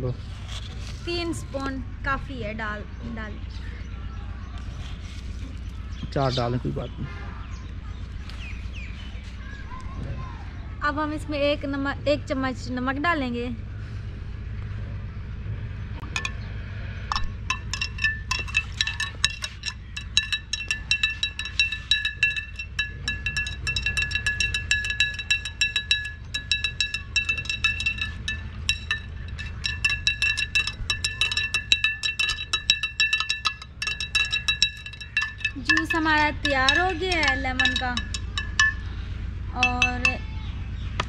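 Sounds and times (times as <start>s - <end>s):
metal spoon clinking against glass: 16.2s - 16.4s, 17.1s - 39.0s, 39.6s - 40.3s.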